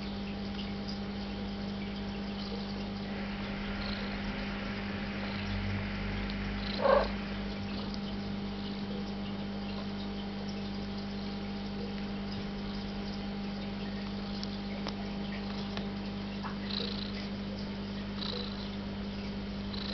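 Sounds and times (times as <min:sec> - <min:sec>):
cat purring: 0:06.6 - 0:08.0, 0:16.4 - 0:17.3, 0:18.2 - 0:18.7.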